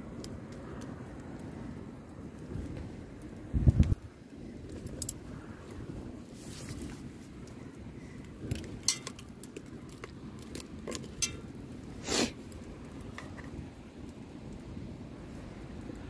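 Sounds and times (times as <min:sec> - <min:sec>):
low steady rush: 0:00.0 - 0:16.0
metal tongs clinking on pot: 0:08.8 - 0:09.2.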